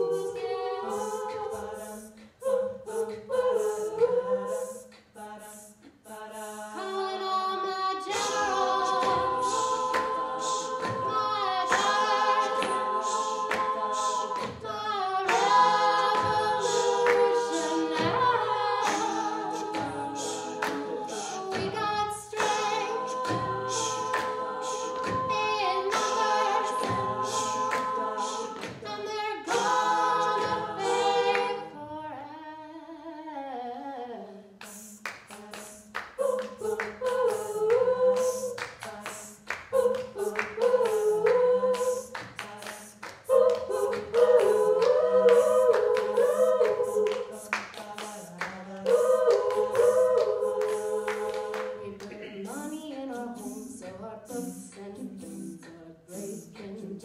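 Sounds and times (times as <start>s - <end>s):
women singing a cappella: 0.0s - 57.0s
sharp percussive vocal beats: 8.0s - 31.7s, 34.6s - 56.8s.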